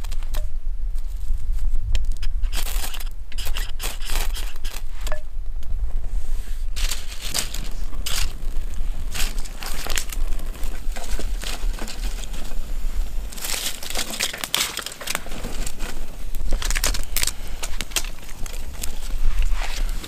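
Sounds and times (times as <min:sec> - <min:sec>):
kindling fire crackling: 0:00.0 - 0:20.0
dry twigs snapping: 0:02.0 - 0:04.9, 0:06.8 - 0:12.6, 0:13.2 - 0:20.0.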